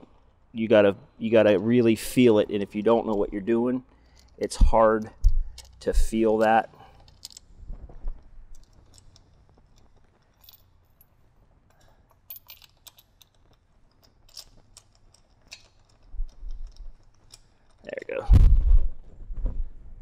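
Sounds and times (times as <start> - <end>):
metallic clicks and rattles: 2.6 - 18.3.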